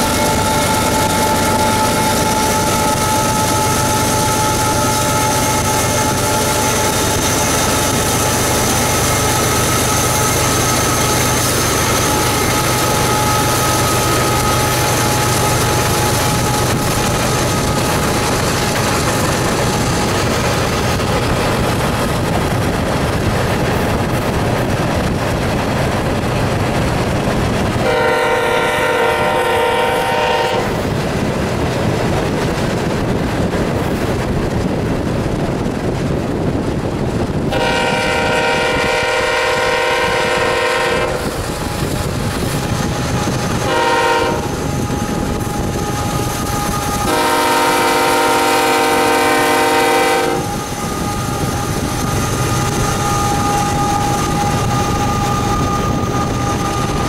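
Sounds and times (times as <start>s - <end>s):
freight train rumbling and clattering: 0.0s - 57.0s
locomotive horn blasts: 27.8s - 30.8s, 37.5s - 41.3s, 43.6s - 44.8s, 46.0s - 51.9s.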